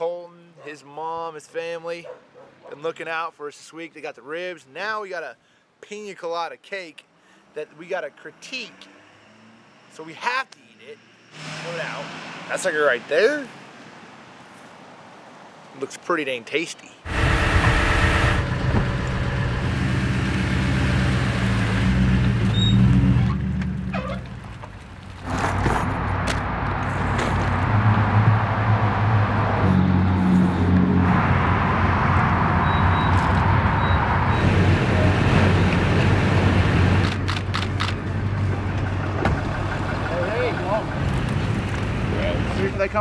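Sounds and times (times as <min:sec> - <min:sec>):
truck engine humming: 0:17.1 - 0:25.2, 0:25.9 - 0:43.0
truck engine running: 0:32.9 - 0:42.5
sharp clicks: 0:37.0 - 0:38.1.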